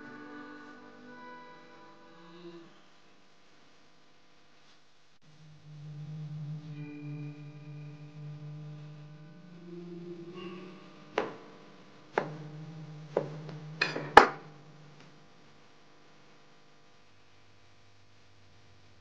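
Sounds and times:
music with sustained tones: 0:00.0 - 0:03.0, 0:05.2 - 0:15.4.

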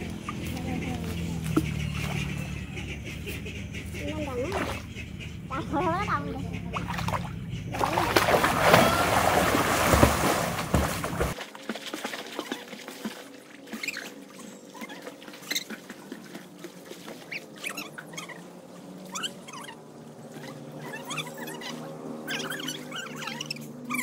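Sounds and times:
water lapping: 0:00.0 - 0:24.0
swimmer splashing into water: 0:07.8 - 0:14.2.

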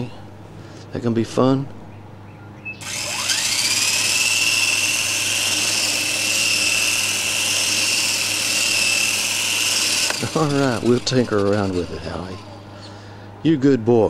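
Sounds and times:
model helicopter rotor whine: 0:02.8 - 0:12.8.

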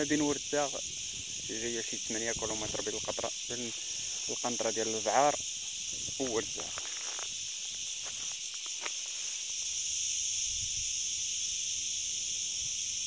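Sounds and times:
insects buzzing: 0:00.0 - 0:13.0.

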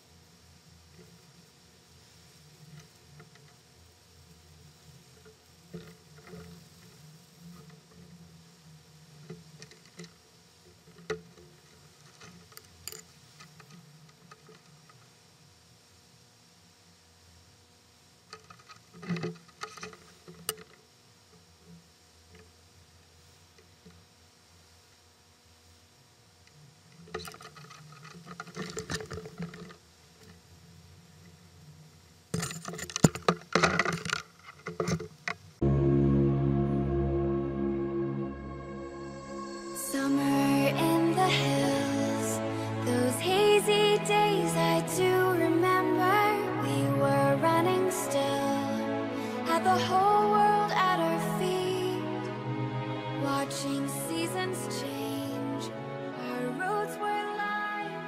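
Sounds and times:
clicks and taps of sail rigging: 0:18.3 - 0:20.8, 0:27.0 - 0:30.4, 0:32.3 - 0:35.4.

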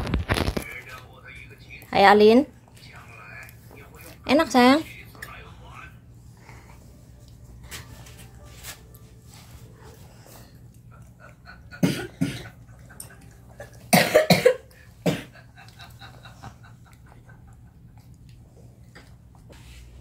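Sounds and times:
person coughing: 0:11.7 - 0:12.6, 0:13.9 - 0:15.4.

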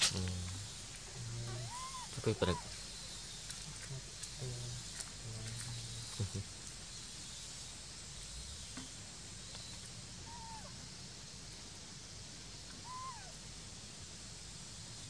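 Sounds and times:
forest ambience hiss: 0:00.0 - 0:15.0
whistle-like animal calls: 0:01.5 - 0:02.7, 0:12.8 - 0:13.3.

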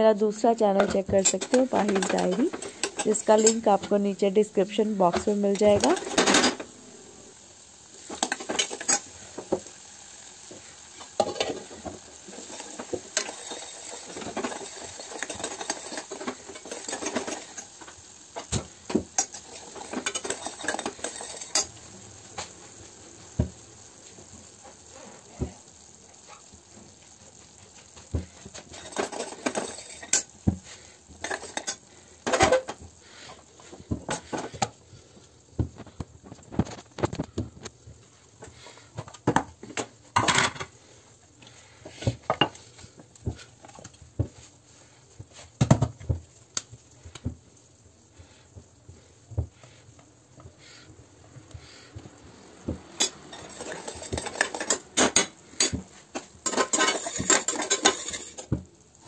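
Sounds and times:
steel spoon scraping a pan: 0:00.8 - 0:04.0, 0:08.0 - 0:09.6, 0:10.8 - 0:18.6, 0:19.2 - 0:21.8, 0:28.4 - 0:33.4, 0:53.0 - 0:58.5.

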